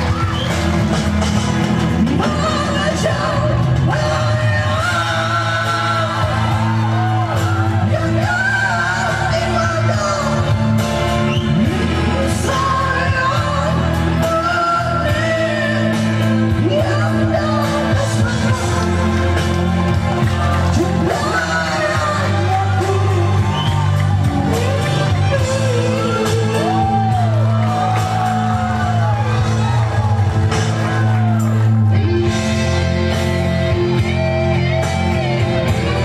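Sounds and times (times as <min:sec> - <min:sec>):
backing music: 0:00.0 - 0:36.0
man singing into microphone: 0:02.0 - 0:19.4, 0:20.7 - 0:27.8.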